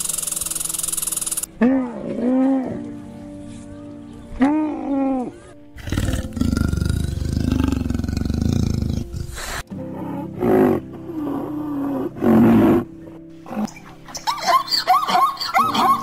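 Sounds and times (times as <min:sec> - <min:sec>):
soft background music: 0:00.0 - 0:16.0
camel gurgling grumble: 0:05.8 - 0:12.9.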